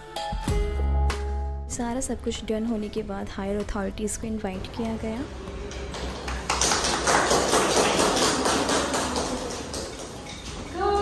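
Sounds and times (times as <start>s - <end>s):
group of people clapping: 5.6s - 11.0s.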